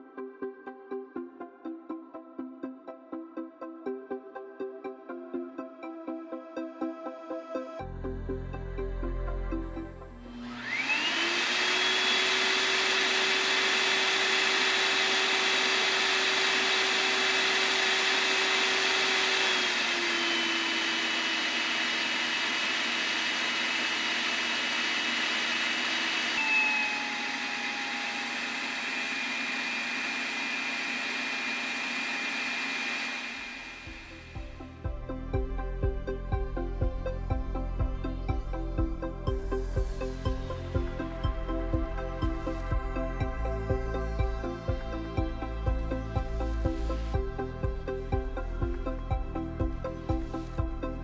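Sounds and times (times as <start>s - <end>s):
electric hand dryer whining: 10.2s - 51.0s.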